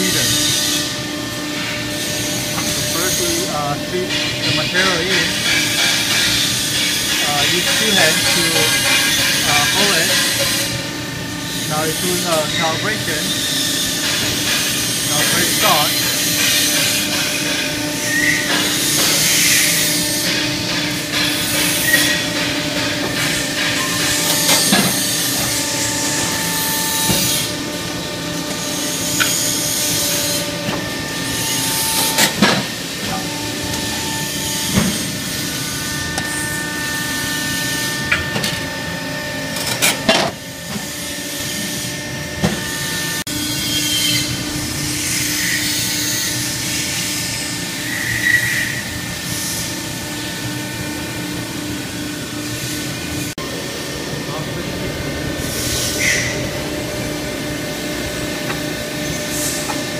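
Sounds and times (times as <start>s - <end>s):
hydraulic hum and whine: 0.0s - 59.9s
shear clanking: 2.5s - 10.6s.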